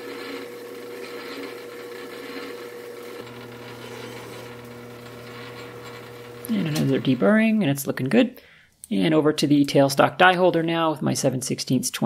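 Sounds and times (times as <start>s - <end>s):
file rubbing spinning shaft: 0.0s - 7.3s
metal lathe humming: 0.0s - 7.6s.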